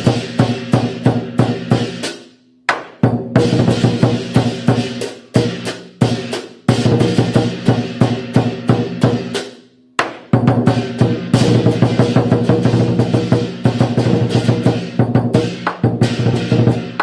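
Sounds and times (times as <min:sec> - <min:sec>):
cymbals crashing: 0:00.0 - 0:02.3
drum struck in quick phrases: 0:00.0 - 0:17.0.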